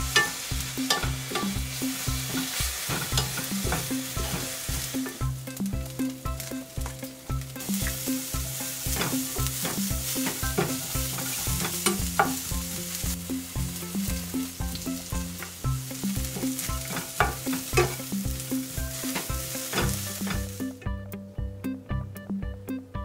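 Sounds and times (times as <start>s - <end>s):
light sizzle: 0.0s - 20.8s
soft background music: 0.0s - 23.0s
wooden spatula scraping pan: 2.2s - 5.2s.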